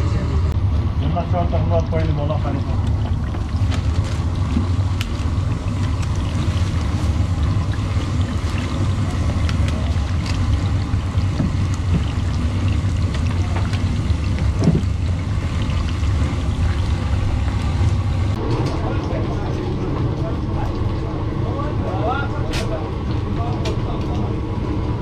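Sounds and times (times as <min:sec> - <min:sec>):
low rumble: 0:00.0 - 0:25.0
hot oil sizzling and popping: 0:00.6 - 0:18.4.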